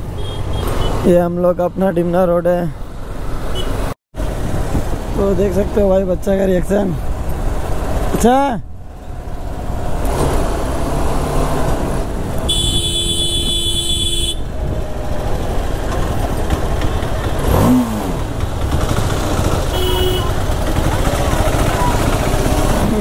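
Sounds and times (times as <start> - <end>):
motorcycle engine and road noise: 0.0 - 23.0
engine revving: 9.1 - 12.5, 14.8 - 23.0
horn sounding: 12.4 - 14.6, 19.7 - 20.5
short horn beep: 12.5 - 14.4.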